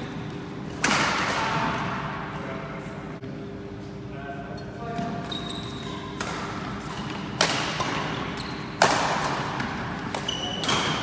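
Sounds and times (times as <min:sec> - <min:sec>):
racket hitting shuttlecock: 0:00.7 - 0:01.8, 0:06.2 - 0:11.0
shoes squeaking on wooden floor: 0:05.1 - 0:06.2.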